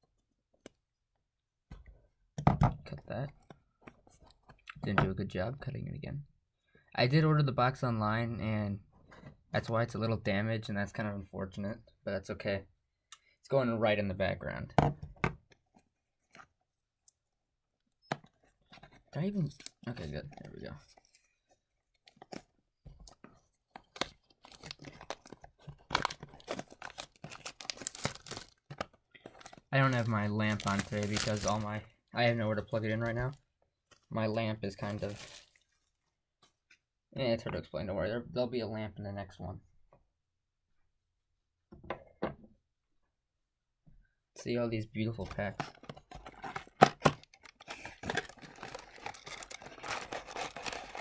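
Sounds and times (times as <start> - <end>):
cardboard tearing and crinkling: 23.9 - 28.6, 29.4 - 31.8, 46.2 - 51.0.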